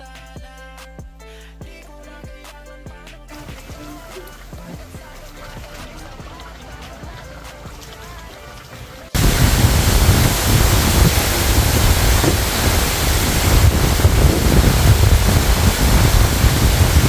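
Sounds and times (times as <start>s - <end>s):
loud rushing noise: 9.2s - 17.0s
low rumble: 9.2s - 17.0s.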